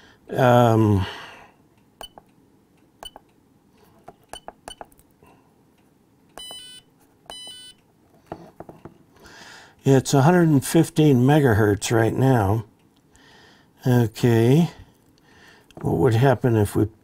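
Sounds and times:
short electronic beeps: 6.4 - 7.8.

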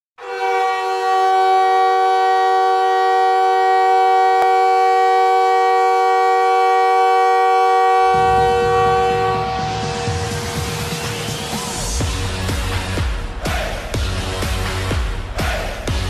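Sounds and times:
goal horn blast: 0.2 - 11.8
song with heavy beat: 8.2 - 16.0.

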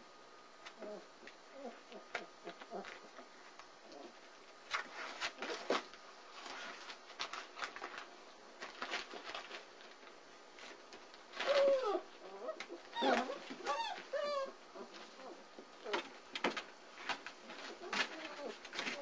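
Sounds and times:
puppies whining: 0.7 - 4.2, 11.3 - 16.1, 17.6 - 19.0
puppy yelps: 11.4 - 14.6.

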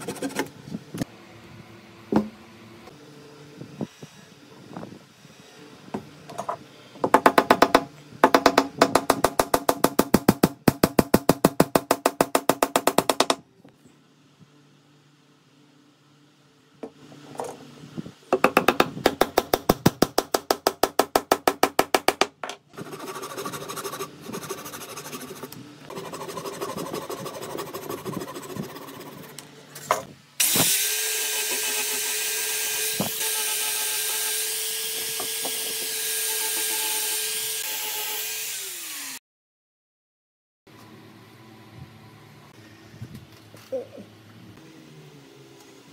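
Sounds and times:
angle grinder sanding wood: 22.8 - 29.4.

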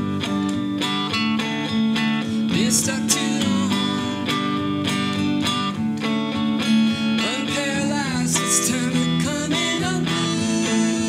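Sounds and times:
electric guitar strumming chords: 0.0 - 11.0
person singing: 2.2 - 5.0, 7.1 - 11.0.

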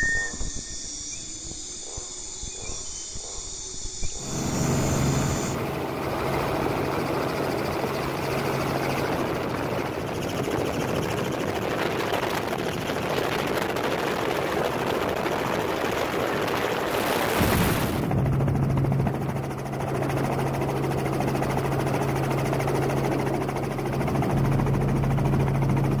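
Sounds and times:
helicopter engine and rotor hum: 0.0 - 17.4, 18.0 - 26.0.

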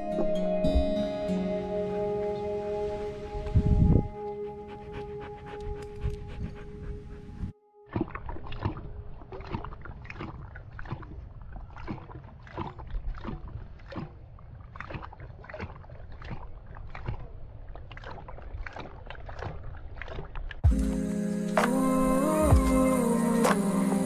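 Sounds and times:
dog lapping water from metal bowl: 7.9 - 20.9.

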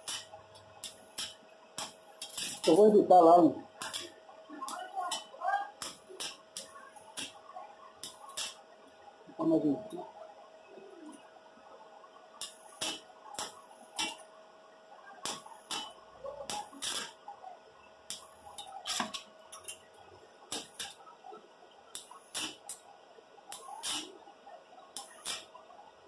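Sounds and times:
welding electrode clicking and crackling: 0.0 - 8.7, 12.4 - 14.3, 15.2 - 17.2, 18.1 - 21.0, 21.9 - 24.2, 24.8 - 25.6
faint steady hum: 0.0 - 26.0.

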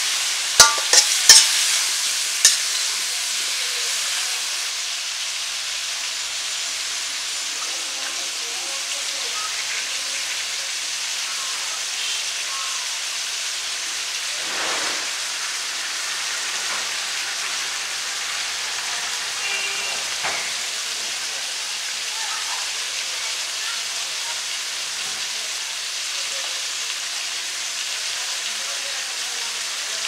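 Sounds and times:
food sizzling in hot oil: 0.0 - 30.0
swish in wok: 14.3 - 15.2.

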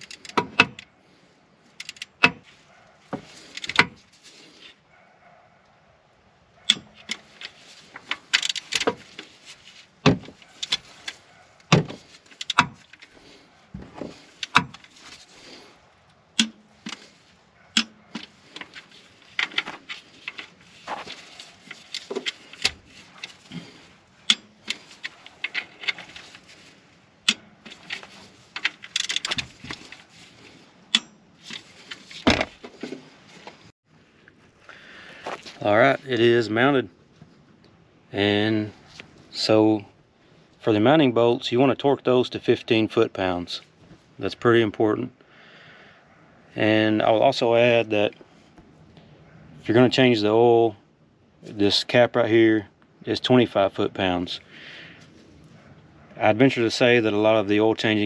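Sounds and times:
hand ratchet clicking: 1.8 - 2.3, 12.3 - 13.1, 28.6 - 29.4
metal tools clinking: 17.8 - 26.7, 27.3 - 33.0.

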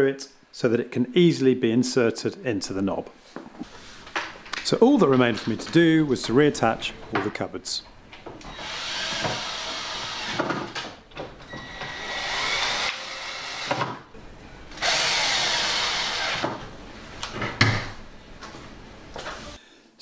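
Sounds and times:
cordless drill driving screws: 8.4 - 10.4, 11.6 - 13.8, 14.8 - 16.5.

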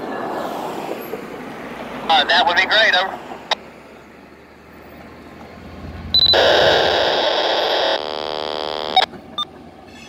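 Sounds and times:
buzzing data tone: 6.1 - 9.1
radio static burst: 6.2 - 9.1
short beeps: 6.2 - 9.5.

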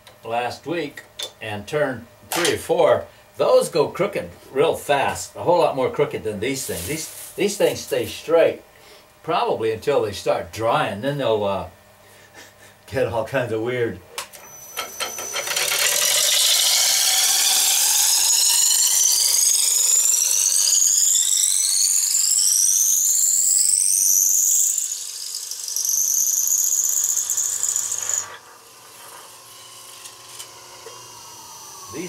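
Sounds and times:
dowel cutter squealing whine: 14.3 - 32.0.

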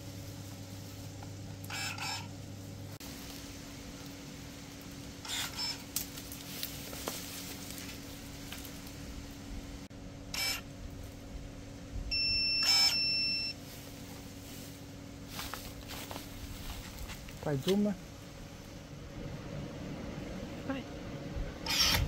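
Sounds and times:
pruning shears motor bursts: 1.6 - 2.4, 5.2 - 6.2, 10.3 - 10.7, 12.2 - 13.5, 21.6 - 22.0
high beep: 12.1 - 13.6.

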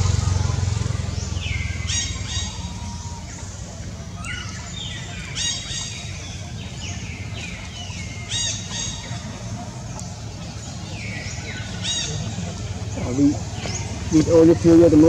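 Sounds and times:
high-pitched animal calls: 0.0 - 6.5.

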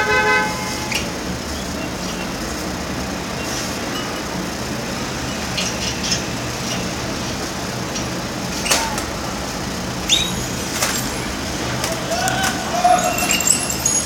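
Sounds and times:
canaries chirping: 5.0 - 8.9, 10.0 - 10.6.

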